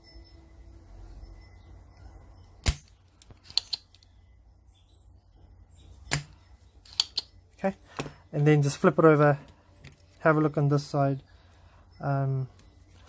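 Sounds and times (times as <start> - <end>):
desoldering pump snapping: 2.6 - 4.1, 6.1 - 7.3.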